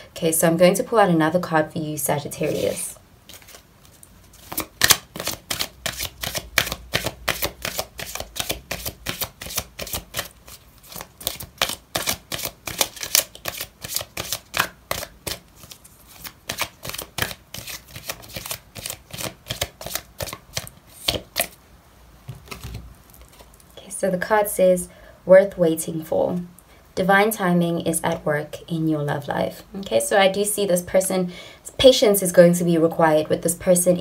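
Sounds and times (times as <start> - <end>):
cards being shuffled: 2.4 - 21.6, 22.3 - 23.6.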